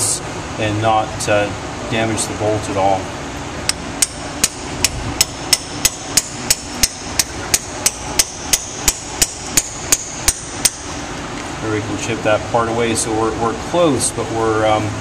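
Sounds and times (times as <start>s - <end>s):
hammer tapping a chisel: 3.7s - 10.8s.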